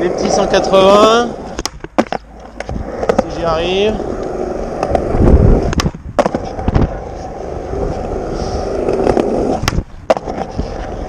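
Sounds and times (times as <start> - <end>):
skateboard wheels rolling on concrete: 0.0 - 11.0
skateboard landing clack: 1.5 - 3.4, 5.7 - 6.9, 9.0 - 10.5
skateboard tail pop: 1.6 - 3.2, 5.7 - 6.9, 9.1 - 10.4.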